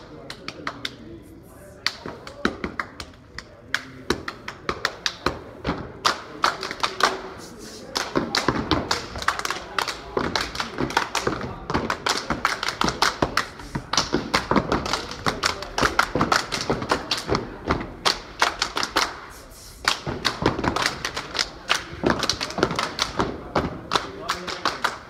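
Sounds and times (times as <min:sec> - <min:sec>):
claps and hand slaps: 0:00.0 - 0:01.0, 0:01.8 - 0:25.0
rhythmic stomps: 0:01.9 - 0:25.0.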